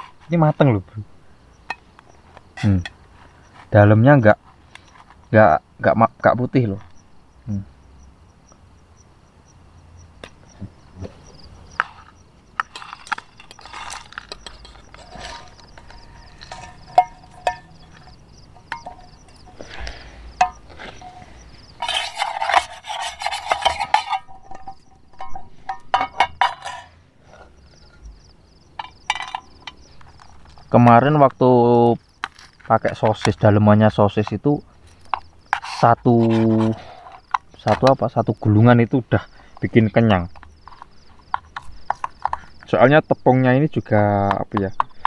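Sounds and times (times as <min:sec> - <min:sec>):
metal spoon scraping pans: 0:11.3 - 0:28.0, 0:28.8 - 0:30.5, 0:34.8 - 0:37.8, 0:39.5 - 0:42.6.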